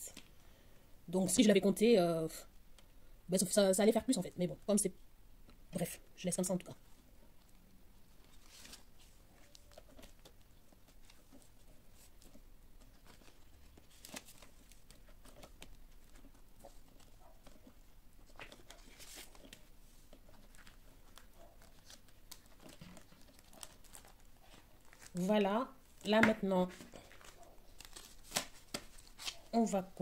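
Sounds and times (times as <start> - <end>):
paper and plastic rustling: 8.2 - 25.3, 25.9 - 30.0.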